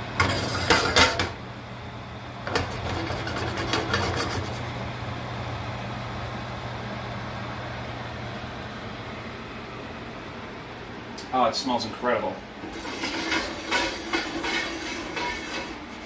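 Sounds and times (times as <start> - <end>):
gravy bubbling and sizzling in pan: 12.6 - 16.0.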